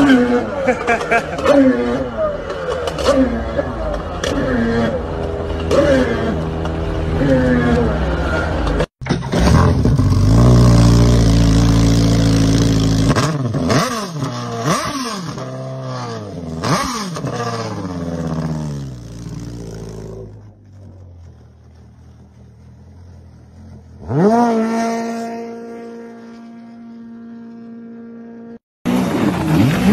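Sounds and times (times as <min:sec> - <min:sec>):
another engine revving: 0:02.9 - 0:21.2, 0:23.5 - 0:29.9
jet ski engine revving: 0:09.2 - 0:29.9.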